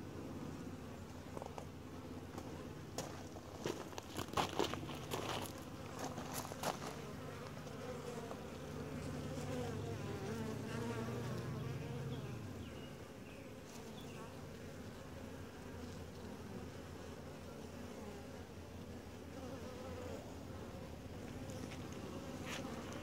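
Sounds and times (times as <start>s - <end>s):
bees buzzing: 4.7s - 23.0s.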